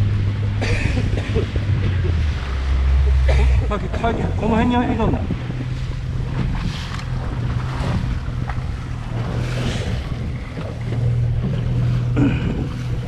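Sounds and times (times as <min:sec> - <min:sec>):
boat engine humming: 0:00.0 - 0:13.0
water surging: 0:00.0 - 0:13.0
wind on microphone: 0:00.0 - 0:13.0.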